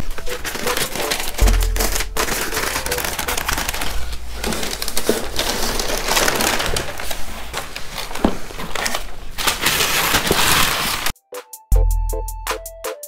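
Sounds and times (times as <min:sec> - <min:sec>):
tissue paper rustling and crinkling: 0:00.0 - 0:11.2.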